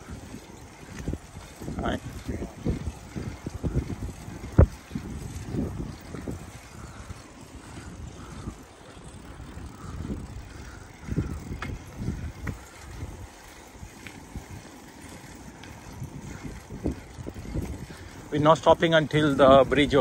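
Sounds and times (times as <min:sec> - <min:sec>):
bicycle tyres rumbling: 0:00.0 - 0:20.0
wind buffeting microphone: 0:00.0 - 0:20.0.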